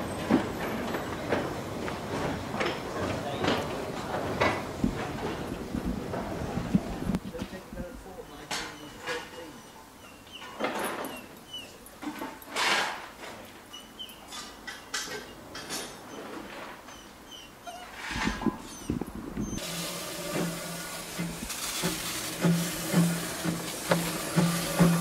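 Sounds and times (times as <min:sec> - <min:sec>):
locomotive low beat: 0:18.3 - 0:25.0
steam hissing: 0:19.4 - 0:25.0.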